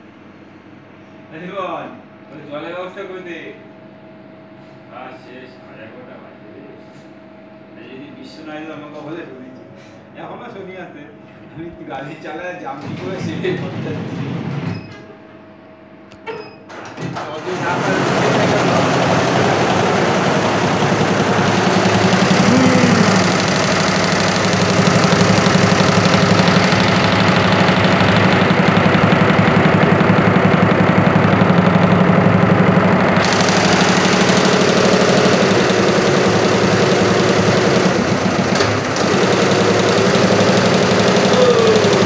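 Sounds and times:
embroidery machine clattering: 16.7 - 42.0.

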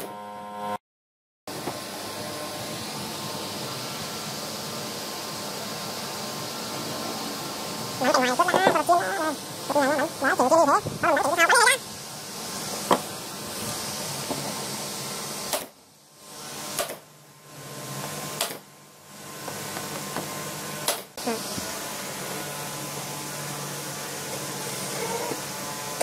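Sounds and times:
nail gun firing: 15.5 - 15.8, 16.7 - 17.1, 18.4 - 18.6.

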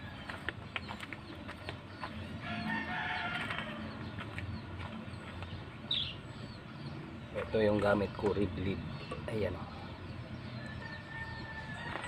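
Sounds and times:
distant rooster crowing: 2.4 - 4.2, 10.5 - 12.0.

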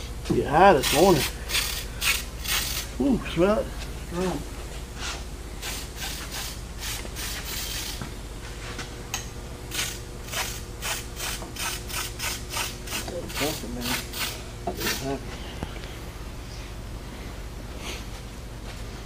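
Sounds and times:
faint steady hum: 0.0 - 19.0
rhythmic rasping strokes: 0.6 - 3.6, 9.7 - 15.2.

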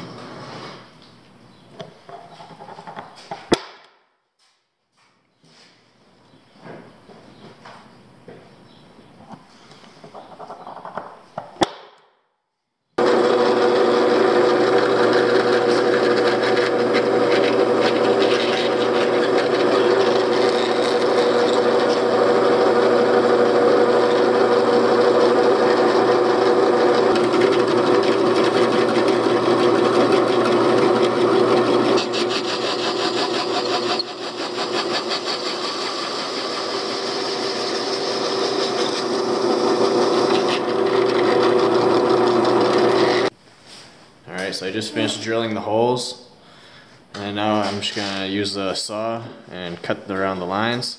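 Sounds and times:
drill press motor: 13.0 - 43.3
hole saw cutting wood: 13.0 - 43.3.

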